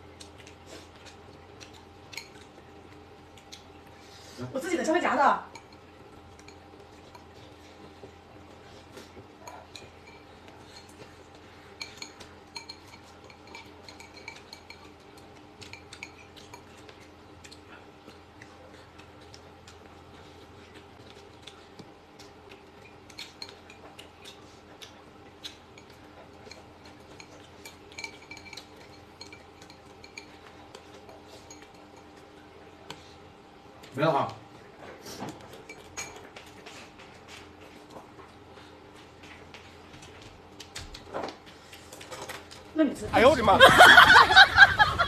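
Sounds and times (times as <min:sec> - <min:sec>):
faint steady hum: 0:00.0 - 0:45.0
chopsticks clinking on bowls: 0:01.0 - 0:02.7, 0:05.5 - 0:08.1, 0:09.4 - 0:17.6, 0:22.5 - 0:32.3, 0:35.5 - 0:36.6.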